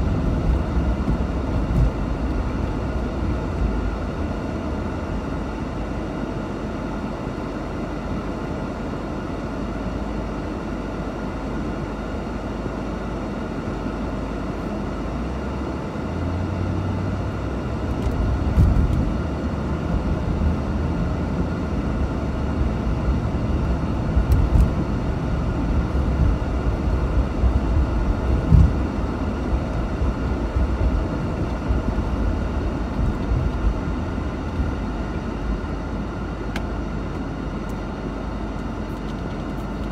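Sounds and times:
thumps over road bumps: 0:00.0 - 0:02.6, 0:18.1 - 0:19.2, 0:28.2 - 0:29.0
car engine: 0:00.0 - 0:39.9
road rumble: 0:00.0 - 0:39.9.

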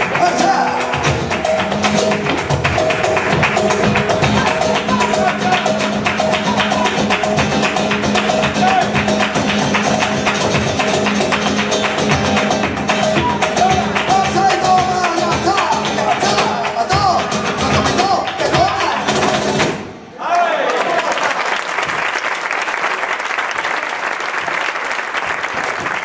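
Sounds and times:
guitar playing: 0:00.0 - 0:18.2
sharp percussive strikes: 0:00.0 - 0:20.0.

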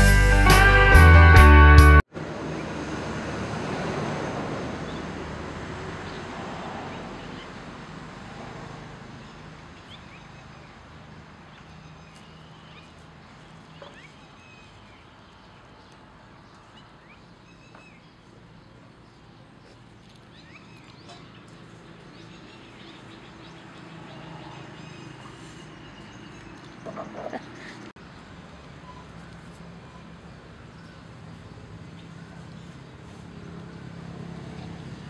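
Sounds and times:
rock music: 0:00.0 - 0:02.0.

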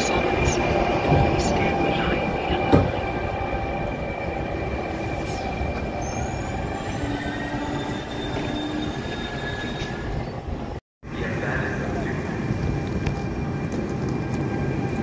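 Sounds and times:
train rumbling: 0:00.0 - 0:15.0
high metallic squeals: 0:01.4 - 0:10.4.

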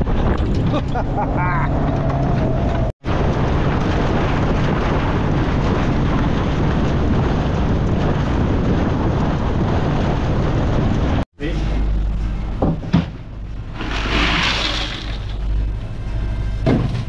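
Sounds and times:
wind buffeting microphone: 0:00.0 - 0:11.3
boat motor rumble: 0:00.0 - 0:17.0.

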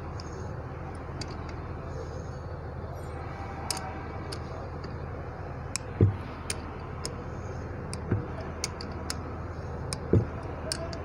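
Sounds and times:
steady low hum: 0:00.0 - 0:11.0
metallic clicks of hand tools: 0:07.9 - 0:09.2, 0:09.9 - 0:11.0.

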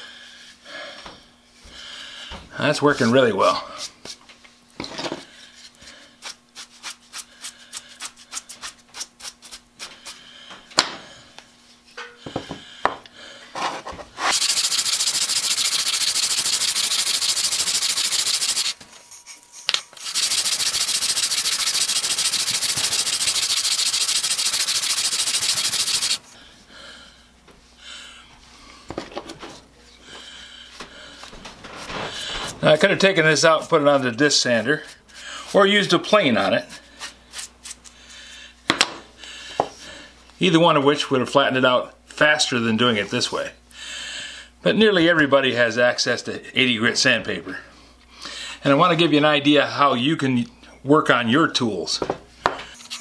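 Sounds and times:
wooden plane rasping on sandpaper: 0:13.6 - 0:18.8, 0:20.0 - 0:26.2.

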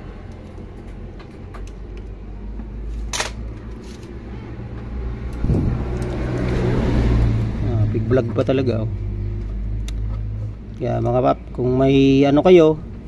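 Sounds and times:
low steady rumble: 0:00.0 - 0:13.0
metal parts clicking and tapping: 0:00.3 - 0:02.2.

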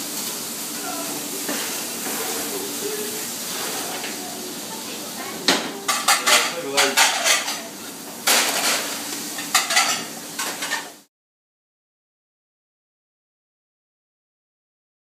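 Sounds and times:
frying sizzle: 0:00.0 - 0:11.1
plates and cutlery clattering: 0:05.5 - 0:11.1.

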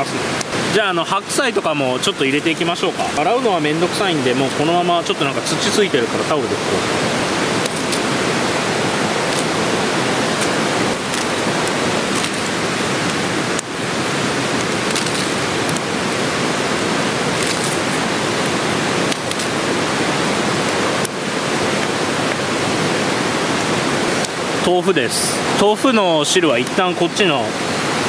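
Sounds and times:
mountain stream rushing: 0:00.0 - 0:28.0
cabbage leaves snapping: 0:07.6 - 0:08.1, 0:09.2 - 0:13.8, 0:14.5 - 0:16.3, 0:17.2 - 0:19.6.

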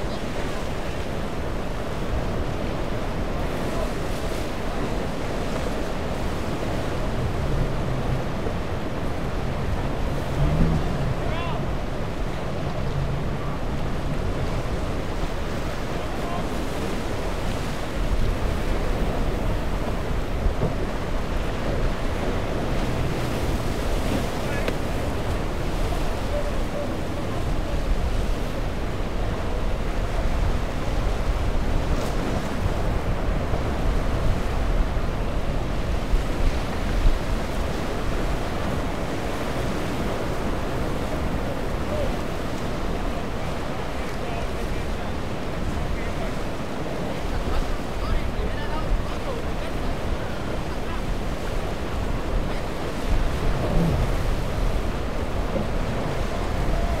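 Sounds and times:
ocean surf breaking on rocks: 0:00.0 - 0:57.0
wind buffeting microphone: 0:49.5 - 0:57.0.

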